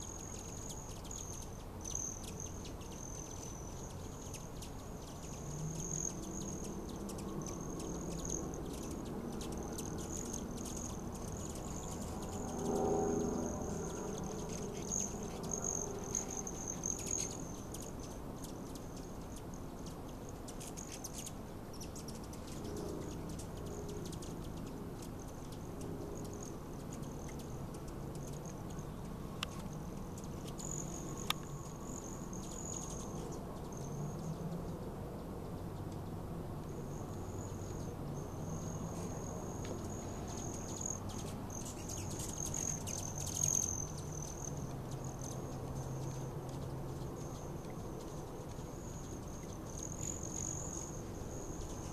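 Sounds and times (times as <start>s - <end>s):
hummingbird wings trilling: 0.0s - 51.9s
sharp ticks: 29.4s - 31.6s.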